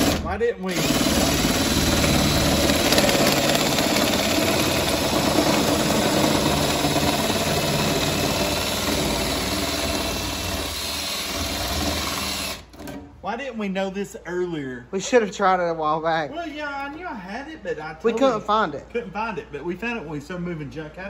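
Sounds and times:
drill with metal shear cutting steel: 0.0s - 13.0s.

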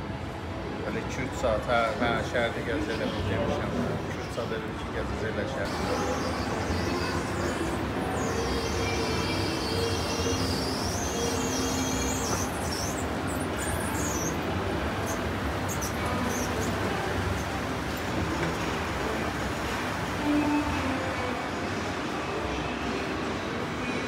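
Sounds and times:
shopping mall hum: 0.0s - 24.0s
high wavering squeal: 5.7s - 18.0s.

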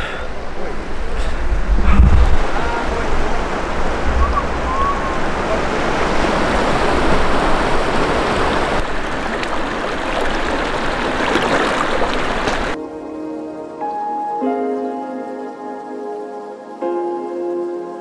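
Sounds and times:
river rushing over rocks: 2.1s - 12.8s.

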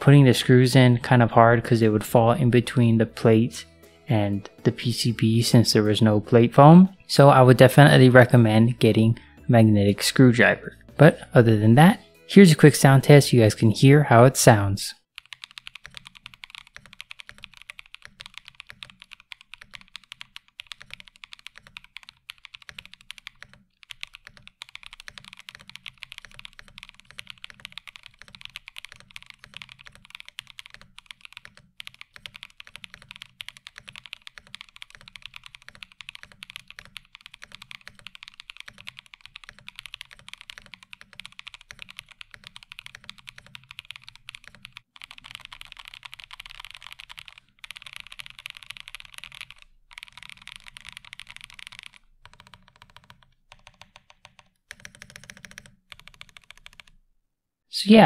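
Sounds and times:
mechanical keyboard typing: 15.2s - 57.0s.

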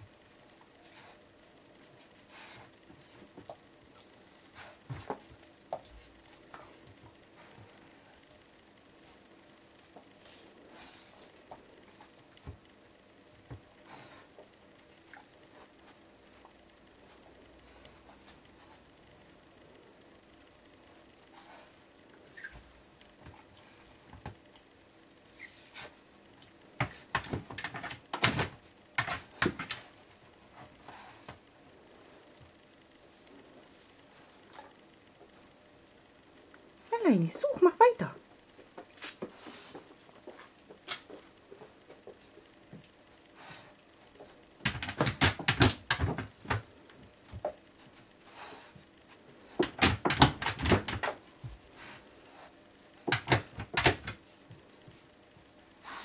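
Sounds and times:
dog knocking objects on shelf: 26.8s - 29.8s, 44.6s - 46.6s, 49.6s - 51.2s, 53.1s - 54.2s.

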